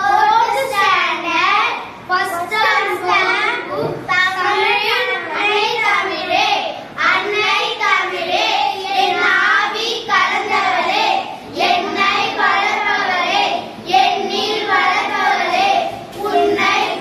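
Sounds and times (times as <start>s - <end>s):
children singing in unison: 6.9s - 17.0s.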